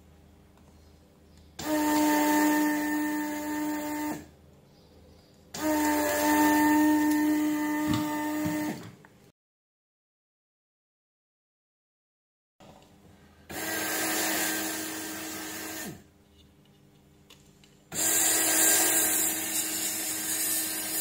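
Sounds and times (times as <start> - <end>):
hot air gun blowing: 1.6 - 4.2, 5.6 - 8.8, 13.5 - 16.0, 17.9 - 21.0.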